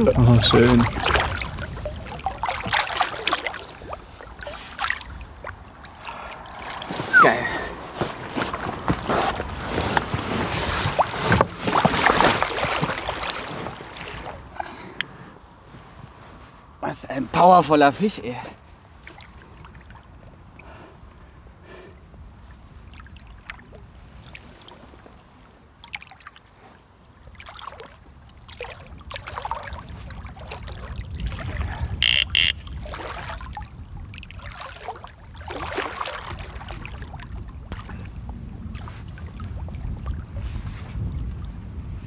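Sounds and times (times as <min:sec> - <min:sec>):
wind rumbling on microphone: 0:00.0 - 0:16.8, 0:28.0 - 0:42.0
water sloshing against a boat: 0:00.0 - 0:42.0
short very loud sounds: 0:32.0 - 0:32.7.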